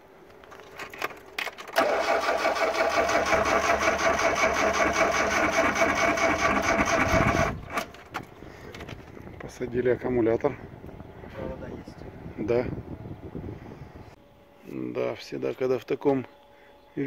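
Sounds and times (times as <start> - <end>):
engine cranking on starter: 1.6 - 8.0.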